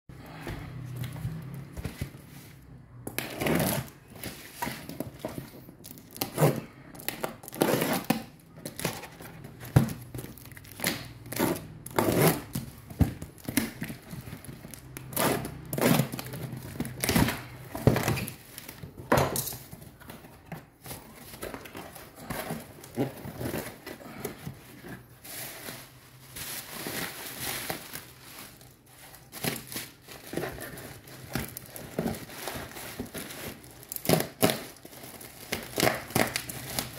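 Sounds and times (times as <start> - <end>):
cardboard and plastic crinkling: 0.2 - 36.9
packing tape ripping: 29.3 - 36.9.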